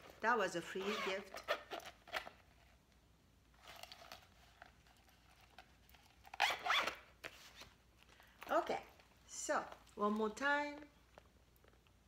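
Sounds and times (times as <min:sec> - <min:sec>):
zipper being pulled: 0:00.7 - 0:02.3, 0:06.2 - 0:07.0.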